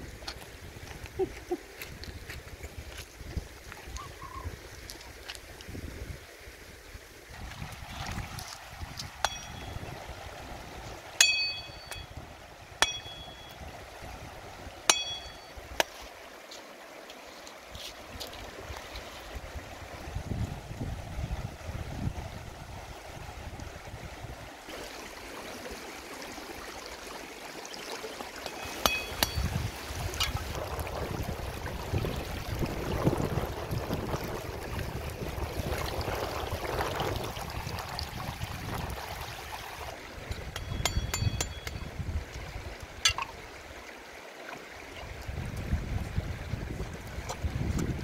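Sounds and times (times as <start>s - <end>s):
river water over stones: 0.0s - 48.0s
water splashing: 7.4s - 12.1s, 24.6s - 41.8s.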